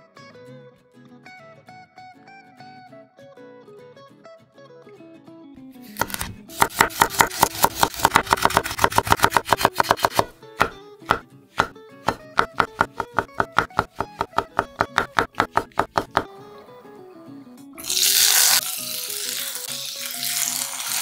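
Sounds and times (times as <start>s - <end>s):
acoustic guitar music: 0.0s - 17.8s
knife chopping on wooden board: 5.9s - 16.3s.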